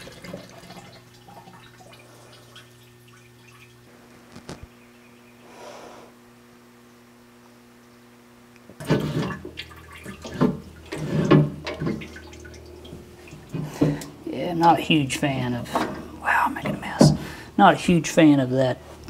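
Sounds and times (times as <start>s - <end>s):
clanks and splashes: 0.0s - 3.8s, 8.7s - 14.8s, 15.6s - 17.4s
liquid trickling into jug: 0.0s - 3.9s, 8.8s - 14.3s.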